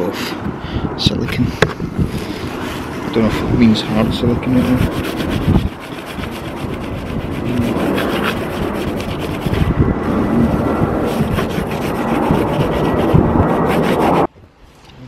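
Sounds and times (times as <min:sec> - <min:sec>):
wipe scrubbing metal panel: 0:02.2 - 0:14.3.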